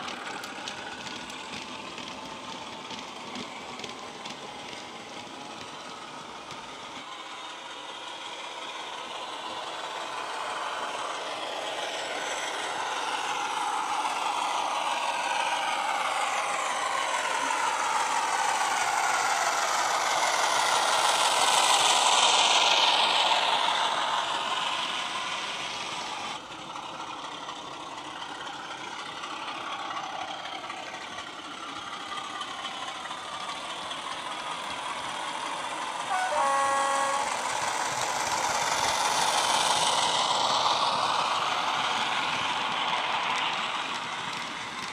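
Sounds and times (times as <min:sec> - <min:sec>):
model diesel engine sound: 0:00.0 - 0:44.9
model train wheels rolling: 0:00.0 - 0:44.9
model train horn blast: 0:36.1 - 0:37.4.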